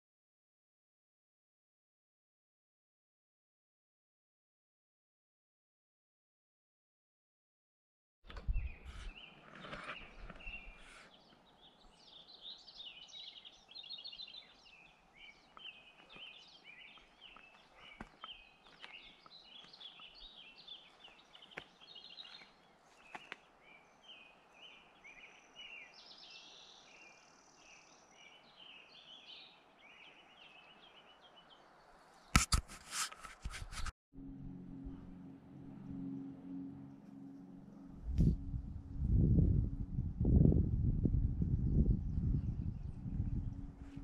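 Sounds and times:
songbirds chirping and trilling: 8.3 - 32.4, 41.1 - 44.0.

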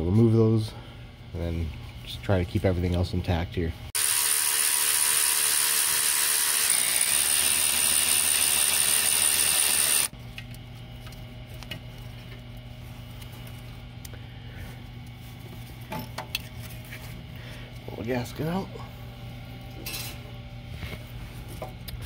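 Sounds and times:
low steady hum: 0.0 - 4.0, 10.1 - 22.0
power ratchet motor whine: 4.0 - 10.2.

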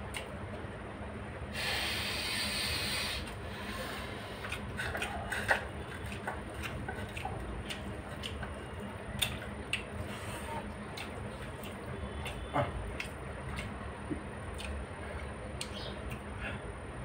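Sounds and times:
breathy hiss: 1.5 - 4.5
wet chewing smacks: 4.2 - 16.3.

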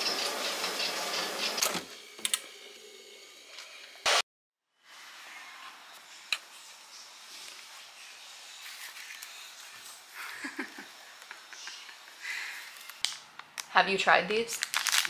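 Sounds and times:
room hiss: 4.8 - 13.2.

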